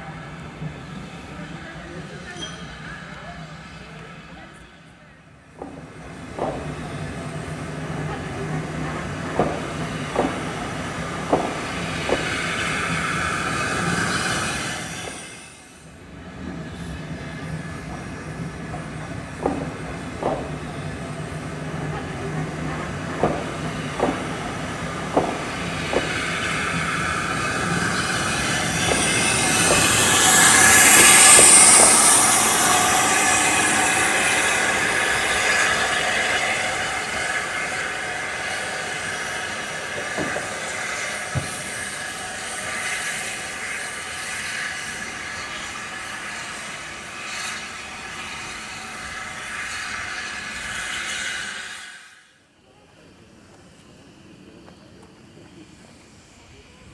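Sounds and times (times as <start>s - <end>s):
low train rumble: 0.0s - 56.9s
steam hissing: 0.0s - 56.9s
train wheels clicking over rail joints: 5.5s - 15.3s, 17.8s - 46.4s.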